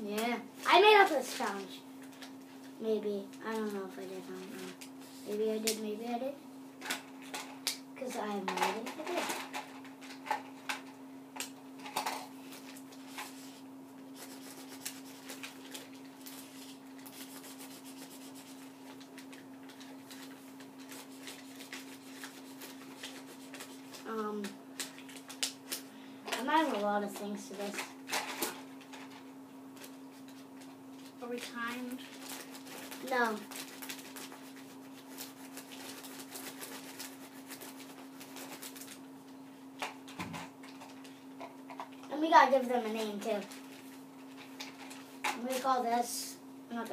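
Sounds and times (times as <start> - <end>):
steady low hum: 0.0 - 46.9
paper being handled: 12.4 - 25.8, 29.7 - 39.0.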